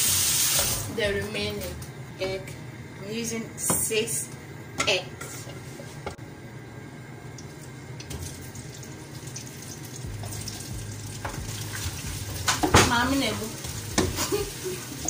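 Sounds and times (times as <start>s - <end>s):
vegetables sizzling in oil: 0.0s - 1.0s, 7.6s - 15.0s.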